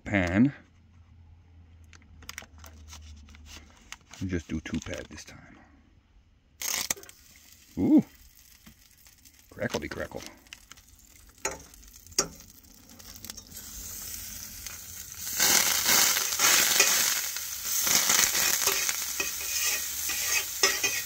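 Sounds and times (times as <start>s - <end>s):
butter sizzling in a frying pan: 6.6s - 21.0s
knife pushing butter in pan: 18.4s - 21.0s.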